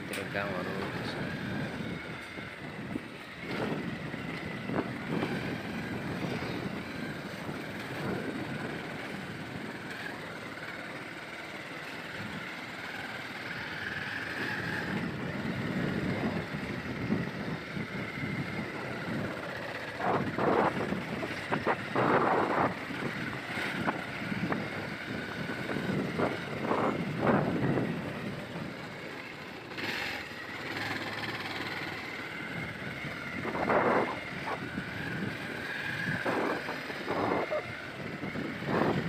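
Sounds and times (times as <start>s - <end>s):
motorcycle engine on gravel road: 0.0s - 39.0s
wind on microphone: 20.0s - 28.6s, 32.4s - 39.0s.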